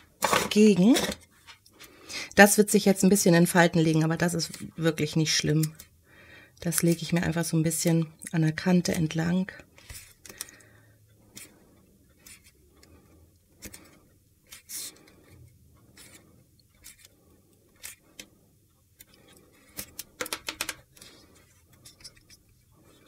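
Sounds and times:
paper rustling: 0:15.9 - 0:17.1.

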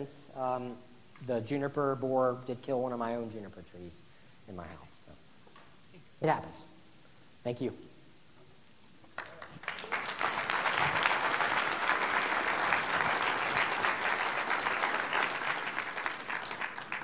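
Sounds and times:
audience applauding: 0:09.2 - 0:17.0.

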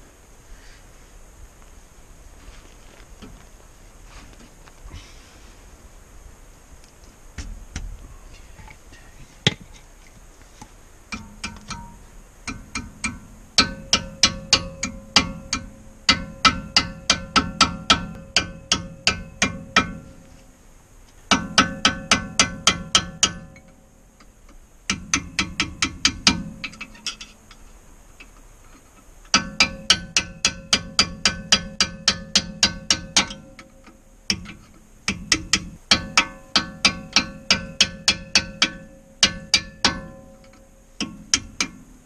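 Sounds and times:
hammer tapping metal punch: 0:11.1 - 0:20.2, 0:21.3 - 0:23.8, 0:24.9 - 0:27.4, 0:29.3 - 0:41.9.

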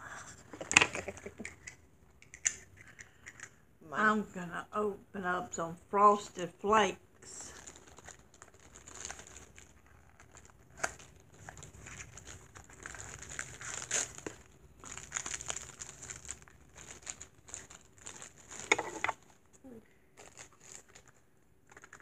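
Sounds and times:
plastic wrapping crinkling and tearing: 0:07.3 - 0:19.5, 0:20.1 - 0:22.0.

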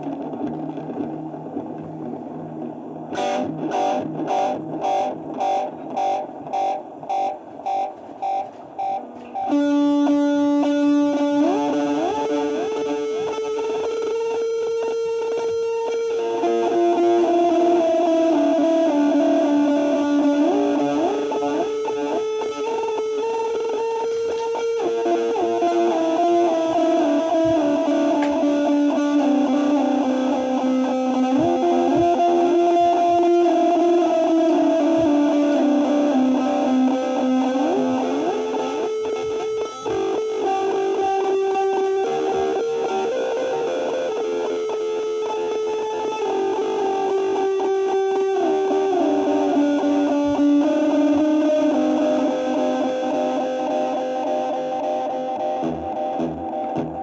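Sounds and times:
electric guitar with delay: 0:00.0 - 0:57.0.

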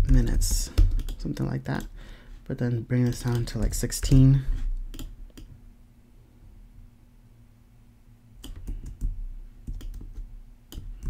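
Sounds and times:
keyboard and mouse clicks: 0:00.8 - 0:01.9, 0:03.0 - 0:04.2, 0:04.9 - 0:05.5, 0:08.4 - 0:11.0.

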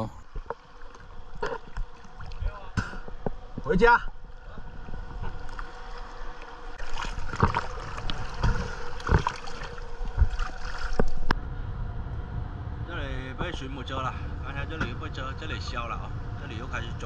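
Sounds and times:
water splashing against boat: 0:00.0 - 0:11.3.

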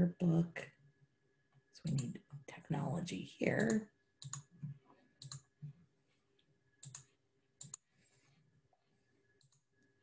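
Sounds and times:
computer mouse clicking: 0:01.8 - 0:02.4, 0:03.6 - 0:05.7, 0:06.8 - 0:07.9, 0:09.4 - 0:09.7.

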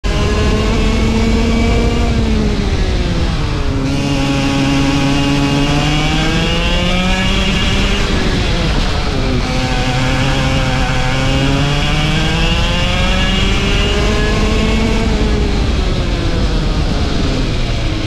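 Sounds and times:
racing kart engine: 0:00.0 - 0:18.0.

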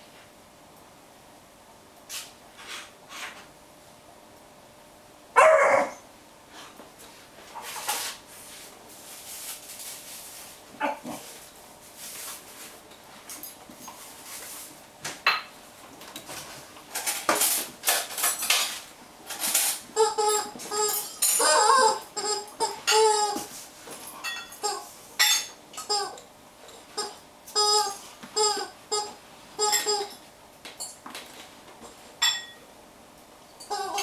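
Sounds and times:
dog chewing rubber toys: 0:19.9 - 0:23.5, 0:27.0 - 0:30.1
rubber chicken toy squawking: 0:20.0 - 0:23.5, 0:27.0 - 0:30.1, 0:33.7 - 0:34.0.

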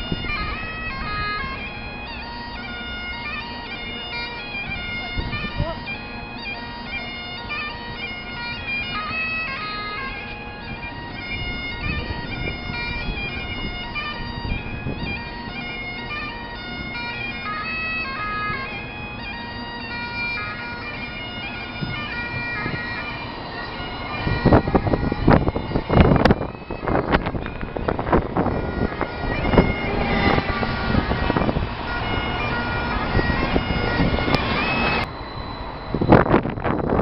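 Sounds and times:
bagpipes playing a tune: 0:00.0 - 0:37.0.

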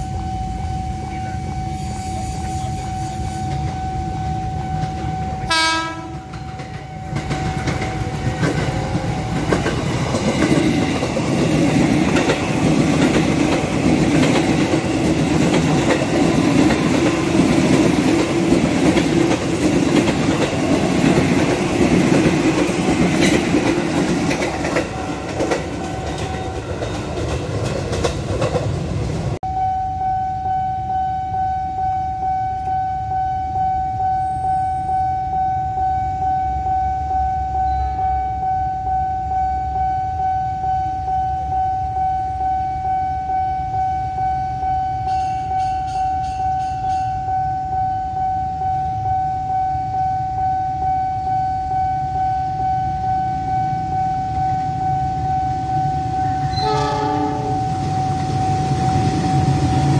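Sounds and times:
steady high tone: 0:00.0 - 0:27.3, 0:29.4 - 0:59.9
train horn blast: 0:04.2 - 0:06.4, 0:56.2 - 0:59.9.

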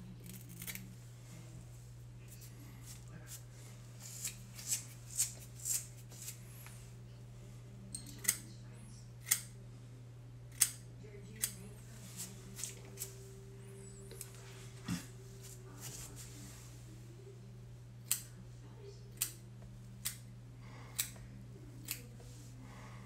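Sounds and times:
steady low hum: 0:00.0 - 0:23.0
scissors snipping hair: 0:00.2 - 0:00.9, 0:04.0 - 0:06.4, 0:07.9 - 0:08.5, 0:09.2 - 0:09.5, 0:10.5 - 0:13.1, 0:18.0 - 0:18.4, 0:19.2 - 0:19.4, 0:20.0 - 0:20.3, 0:20.9 - 0:21.2, 0:21.8 - 0:22.2.

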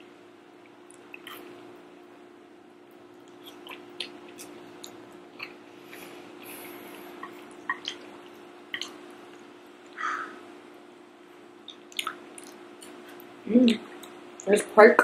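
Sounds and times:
chewing smacks and clicks: 0:00.8 - 0:01.5, 0:03.2 - 0:05.6, 0:07.2 - 0:10.0, 0:11.6 - 0:14.5.

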